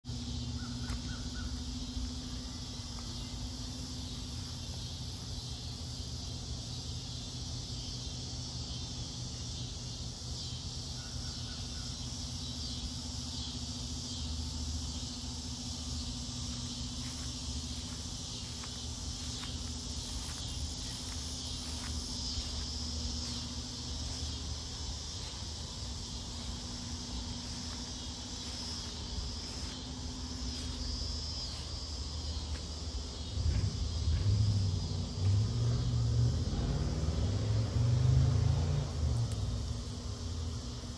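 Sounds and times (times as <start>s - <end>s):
insects droning: 0.0s - 40.9s
low steady hum: 0.1s - 40.9s
bird chirps: 0.2s - 1.8s.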